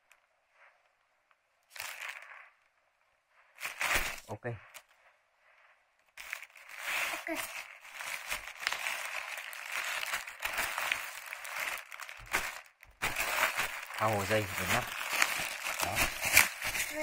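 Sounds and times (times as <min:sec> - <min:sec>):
plastic bag crinkling: 0:01.7 - 0:02.6, 0:03.6 - 0:05.0, 0:06.1 - 0:17.0.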